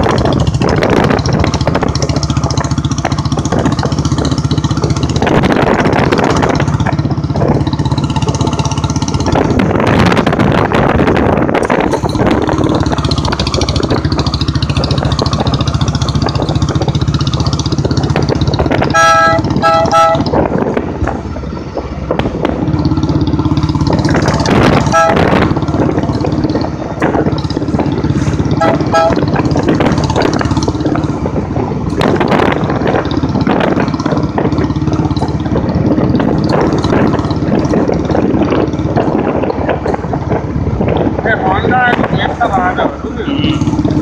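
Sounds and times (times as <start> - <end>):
motorcycle engine running: 0.0 - 44.0
rattles from bumps: 0.0 - 44.0
short horn beeps: 18.9 - 20.3, 24.9 - 25.2, 28.6 - 29.2.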